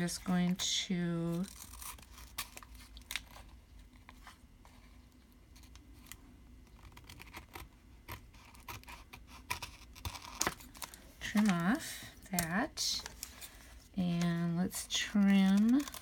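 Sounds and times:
scissors snipping paper: 14.1s - 16.0s.

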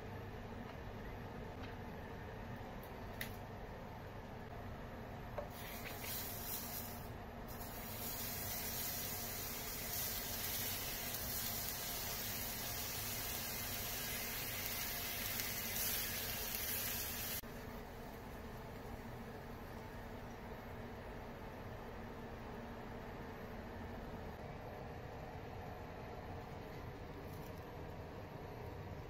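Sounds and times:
eggplants sizzling in a hot pan: 5.5s - 17.4s.

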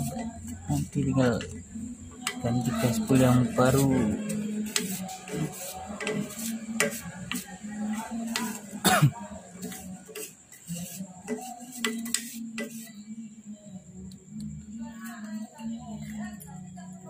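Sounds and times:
wooden stick scraping inside muffler: 0.0s - 8.8s.

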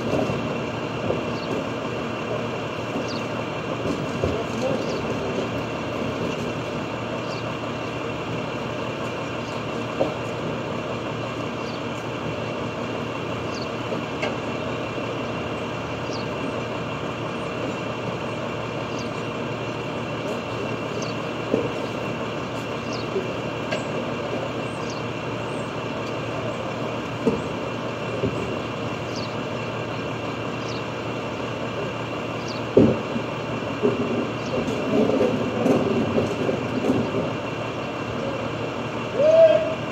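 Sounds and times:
garbage truck engine idling: 0.0s - 39.9s
knocks and bangs: 32.7s - 37.4s.

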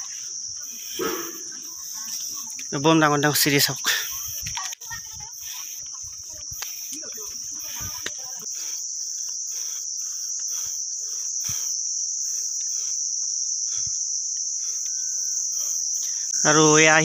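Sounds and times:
faint footsteps on a path: 0.0s - 9.6s
insects chirring: 0.0s - 17.0s.

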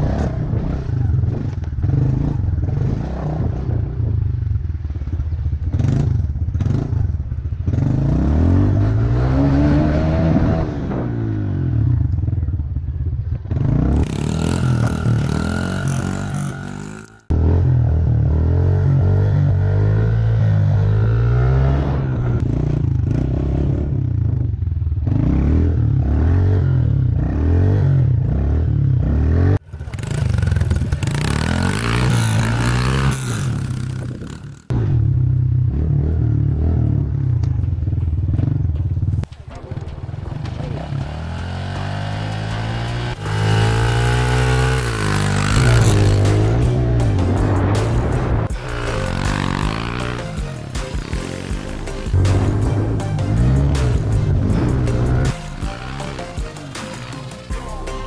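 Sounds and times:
small motorbike engine revving: 13.6s - 17.8s, 25.0s - 34.8s, 40.4s - 47.4s, 48.5s - 50.4s.

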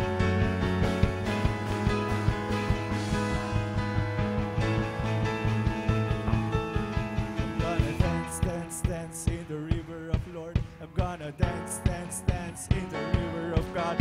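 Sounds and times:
live band playing: 0.0s - 14.0s.

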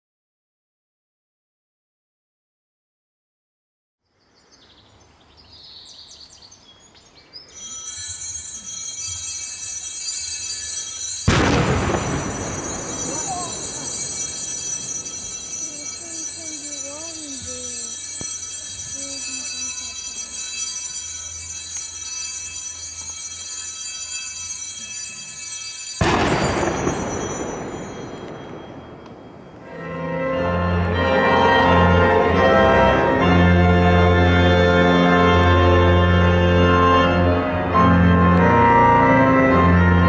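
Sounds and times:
birds chirping faintly: 4.1s - 11.0s
altar bells ringing: 7.3s - 40.0s.

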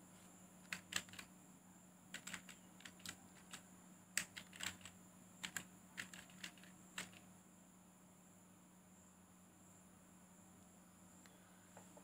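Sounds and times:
keyboard typing clicks: 0.7s - 1.3s, 2.1s - 3.6s, 4.2s - 7.2s.

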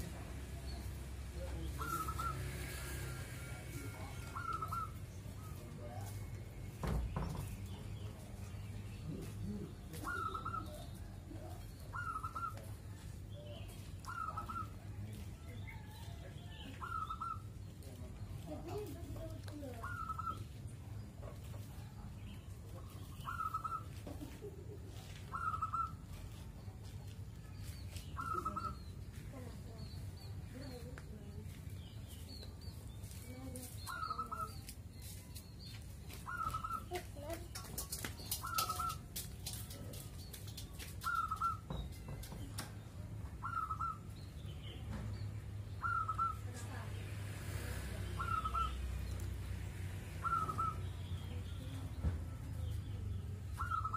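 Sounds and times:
small birds chirping: 0.0s - 53.9s
doves cooing: 1.8s - 3.1s, 3.9s - 5.7s, 9.2s - 11.0s, 11.8s - 12.8s, 14.0s - 14.8s, 19.8s - 20.5s, 23.2s - 24.1s, 24.7s - 26.1s, 36.2s - 36.9s, 37.8s - 39.6s, 41.0s - 41.7s, 43.4s - 44.1s, 45.8s - 46.5s, 48.1s - 49.0s, 50.1s - 50.9s, 53.5s - 53.9s
dove cooing: 4.3s - 5.0s, 10.0s - 10.8s, 11.9s - 12.6s, 25.3s - 26.0s, 43.4s - 44.0s, 45.8s - 46.4s, 48.2s - 48.8s, 50.2s - 50.8s, 53.6s - 53.9s.

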